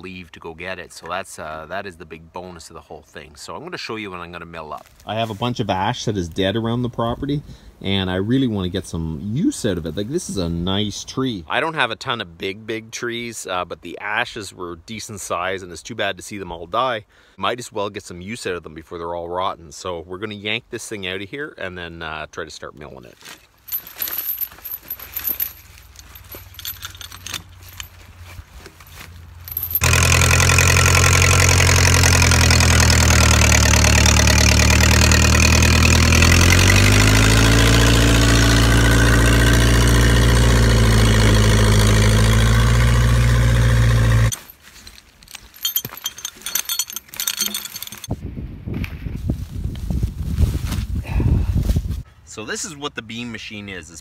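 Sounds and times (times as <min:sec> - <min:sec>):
chain clinking and rattling: 0:23.4 - 0:30.5, 0:41.6 - 0:48.2
tractor engine running: 0:29.2 - 0:44.5.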